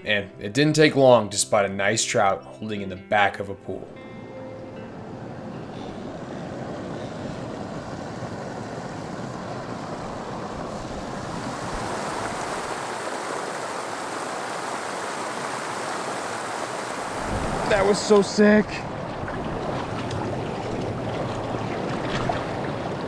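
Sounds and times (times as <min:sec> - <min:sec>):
water pouring over a ledge: 0:11.4 - 0:23.0.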